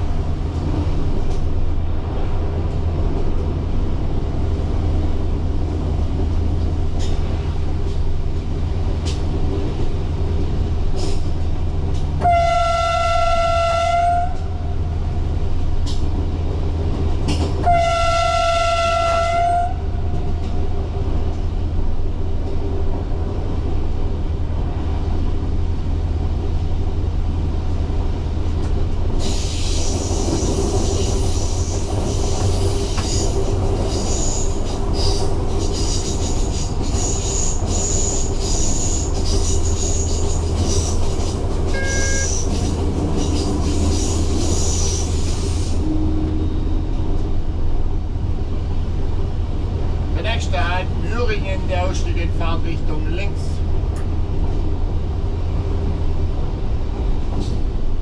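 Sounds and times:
diesel railcar running: 0.0 - 58.0
train horn blast: 12.2 - 14.8, 17.6 - 20.0, 41.7 - 42.5, 45.8 - 46.7
high wheel squeal: 29.2 - 47.1.

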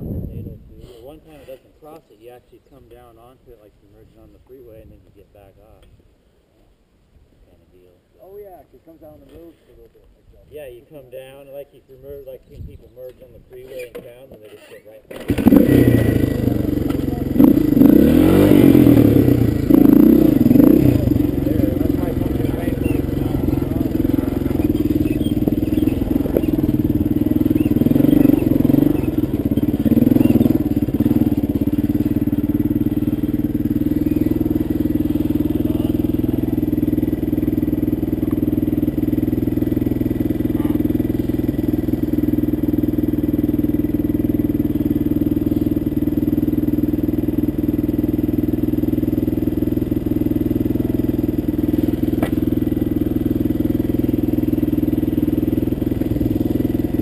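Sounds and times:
dirt bike engine idling: 15.1 - 57.0.

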